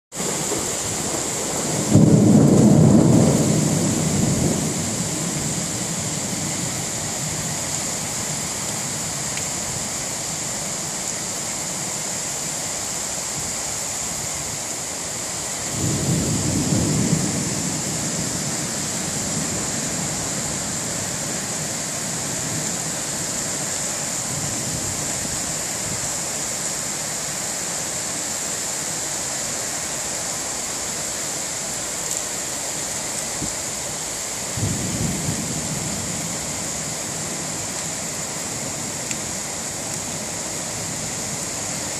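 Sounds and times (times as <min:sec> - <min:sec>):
heavy rain hissing: 0:00.1 - 0:41.9
thunder rumbling: 0:00.2 - 0:08.2, 0:15.6 - 0:26.0, 0:34.4 - 0:41.9.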